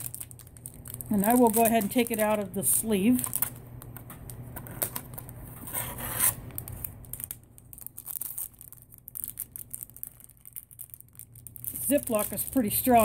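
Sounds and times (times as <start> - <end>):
plastic rustling and clicks: 0.0 - 2.4, 6.5 - 13.0.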